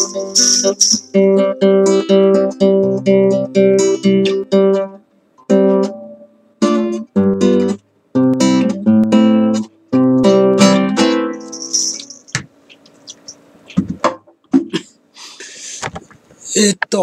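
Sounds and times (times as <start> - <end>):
acoustic guitar chords strummed: 0.0 - 12.4.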